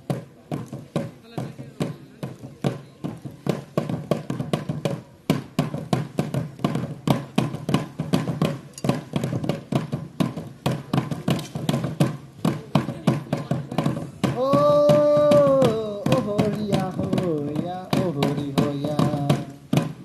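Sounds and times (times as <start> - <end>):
percussion beaten in quick rhythm: 0.0 - 20.0.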